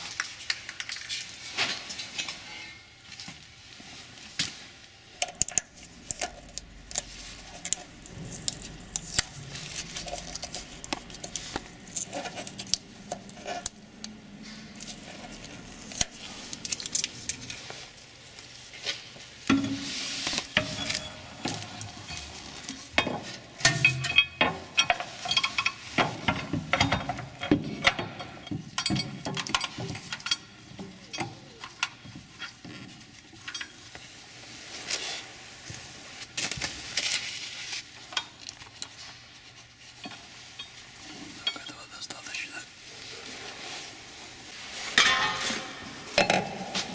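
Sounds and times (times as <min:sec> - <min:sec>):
metal parts clinking and scraping: 0:05.2 - 0:18.0, 0:20.4 - 0:32.6, 0:45.0 - 0:46.9.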